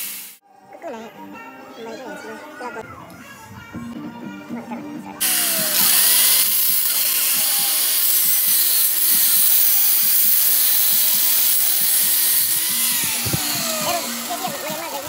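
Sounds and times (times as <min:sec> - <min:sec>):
angle grinder motor whine: 0:05.2 - 0:15.0
wire wheel grinding steel: 0:05.2 - 0:15.0.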